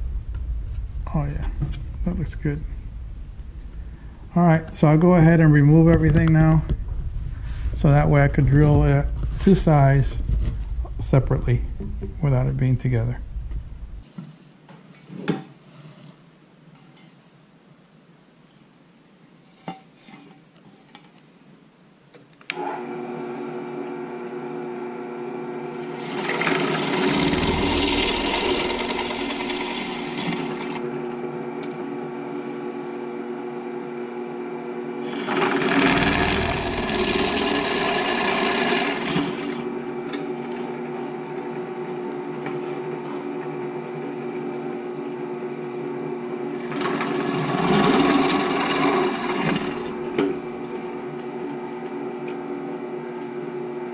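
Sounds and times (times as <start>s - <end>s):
drill press motor humming: 22.5s - 31.8s, 34.9s - 40.7s, 46.4s - 52.4s
drill bit grinding through plate: 25.6s - 30.8s, 35.0s - 39.7s, 46.5s - 50.4s.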